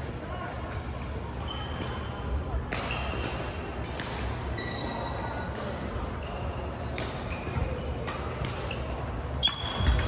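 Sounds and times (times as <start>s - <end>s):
racket hitting shuttlecock: 2.7s - 4.4s
shoes squeaking on court: 6.2s - 10.0s.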